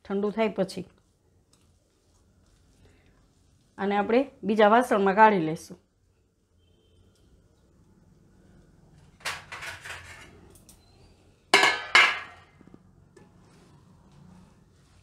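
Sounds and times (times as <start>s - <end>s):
utensils clanking against a wok: 11.6s - 12.4s.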